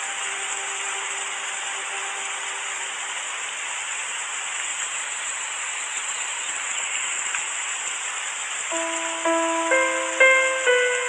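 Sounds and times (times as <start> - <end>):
steady rain: 0.0 - 11.0.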